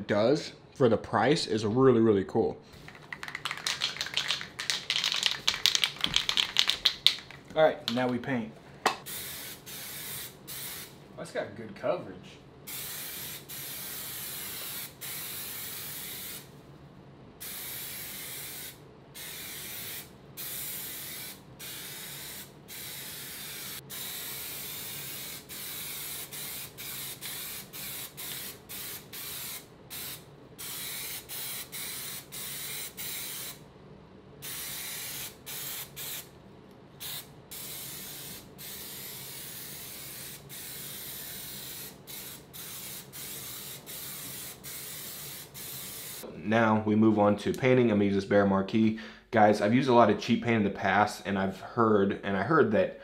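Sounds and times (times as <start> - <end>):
spray paint can hissing: 2.8 - 7.4, 9.0 - 10.9, 12.7 - 16.5, 17.4 - 33.6, 34.4 - 36.3, 37.0 - 46.2.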